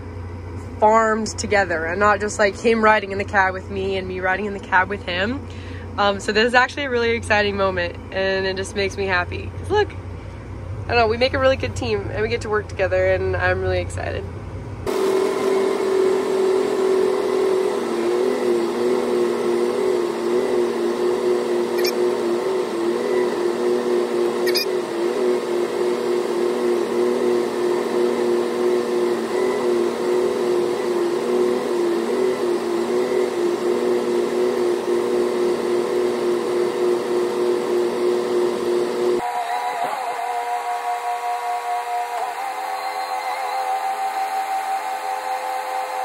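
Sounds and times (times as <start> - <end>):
machinery drone in tractor cab: 0.0 - 46.0
wavering hum tones: 21.7 - 22.1, 24.4 - 24.8.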